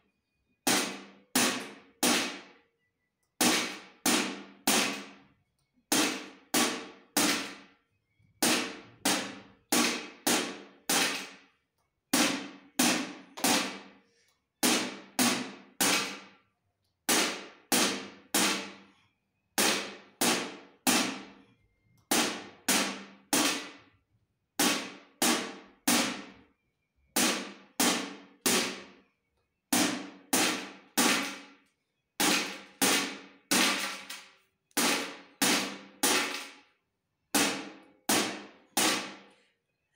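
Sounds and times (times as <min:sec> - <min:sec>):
stick beating a metal tin: 0:03.4 - 0:05.1, 0:05.9 - 0:07.6, 0:08.4 - 0:11.4, 0:12.2 - 0:13.8, 0:29.8 - 0:31.5, 0:32.2 - 0:36.6, 0:37.4 - 0:39.3.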